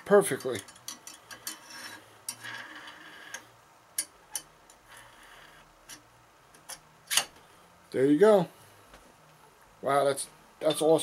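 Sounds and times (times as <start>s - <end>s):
soft metal scrape: 0.4s - 3.4s, 4.8s - 5.6s.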